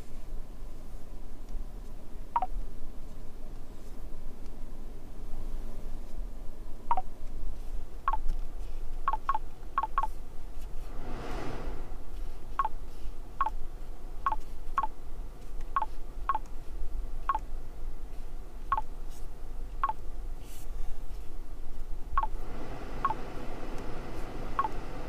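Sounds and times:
low steady hum: 0.0 - 25.0
touchscreen beeps: 9.1 - 10.1
soft whoosh: 10.6 - 12.4.

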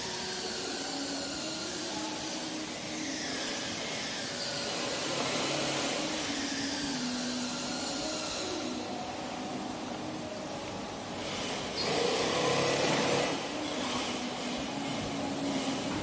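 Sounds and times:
electric air blower whirring: 0.0 - 9.4, 10.9 - 16.0.

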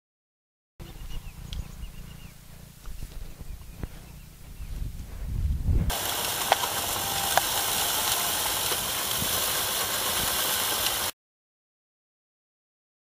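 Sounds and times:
low rumble: 0.8 - 6.0
fertilizer broadcaster hissing: 5.9 - 11.1.

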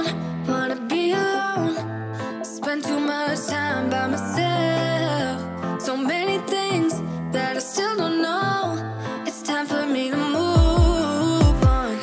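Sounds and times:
song with melody and bass: 0.0 - 12.0.

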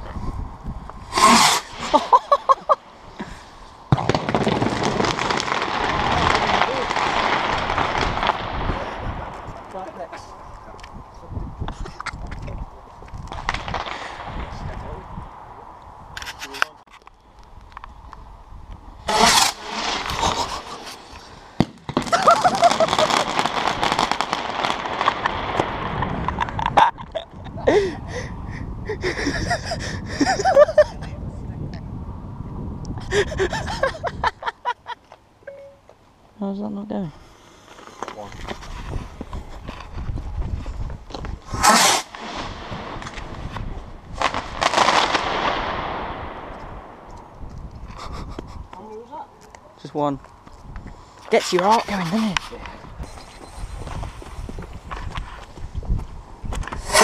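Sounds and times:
firework crackling and pops: 0.9 - 10.1, 11.6 - 15.1, 19.0 - 27.2, 37.3 - 48.8, 50.6 - 57.0
sharp firework crack: 1.0 - 2.4, 3.9 - 9.8, 13.3 - 14.7, 19.0 - 26.7, 41.4 - 47.3, 56.7 - 57.0
loud firework bang echoing: 3.9 - 8.9.

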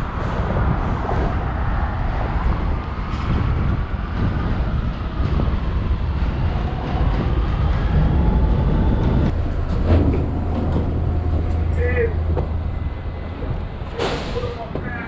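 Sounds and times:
subway train rumbling: 0.0 - 15.0
faint train whine: 6.7 - 15.0.

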